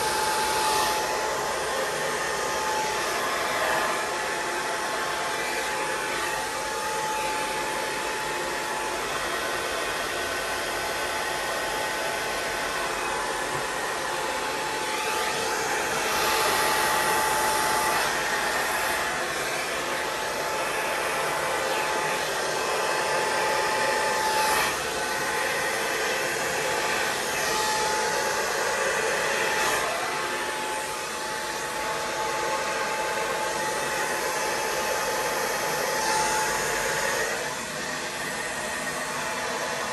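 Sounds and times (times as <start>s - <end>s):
air blower running: 0.0s - 39.9s.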